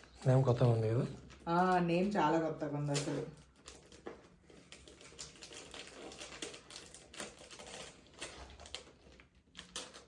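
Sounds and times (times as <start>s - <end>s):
wrapping paper crinkling: 2.8s - 10.0s.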